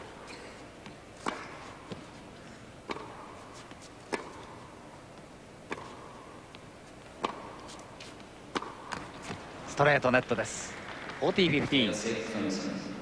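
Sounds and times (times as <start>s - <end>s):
tennis ball bouncing: 0.3s - 9.7s, 10.7s - 11.7s
tennis ball hit by rackets: 0.8s - 2.2s, 2.8s - 9.5s.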